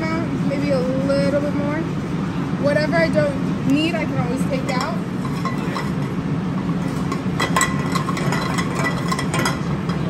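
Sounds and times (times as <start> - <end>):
gas range burning rumble: 0.0 - 10.0
pan clinking on iron grate: 4.6 - 6.0, 6.6 - 10.0.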